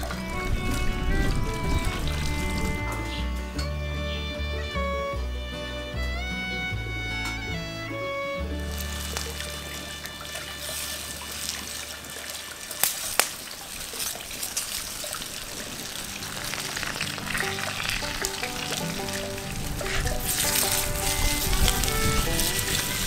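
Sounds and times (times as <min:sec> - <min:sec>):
background music: 0:00.0 - 0:13.3, 0:15.5 - 0:23.0
vegetables sizzling in a pan: 0:16.0 - 0:21.0.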